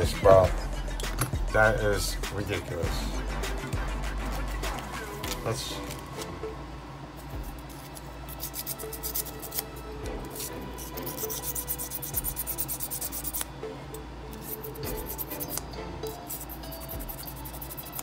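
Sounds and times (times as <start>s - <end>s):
file rasping: 8.3s - 9.6s, 10.3s - 13.5s, 14.3s - 15.6s, 16.2s - 18.0s.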